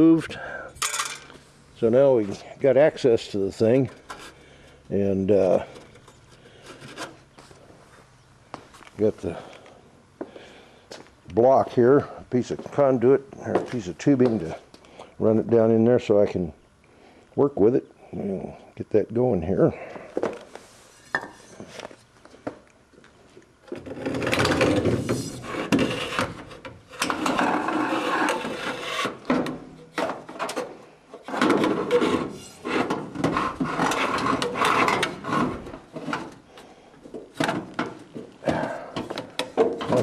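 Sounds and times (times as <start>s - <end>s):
metal tube scraping: 23.8s - 29.3s, 31.2s - 36.1s.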